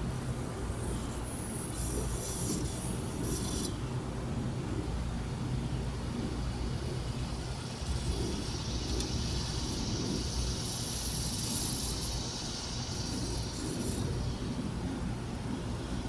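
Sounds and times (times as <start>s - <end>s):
low outdoor rumble: 0.0s - 16.0s
hiss: 0.7s - 3.8s, 6.2s - 15.0s.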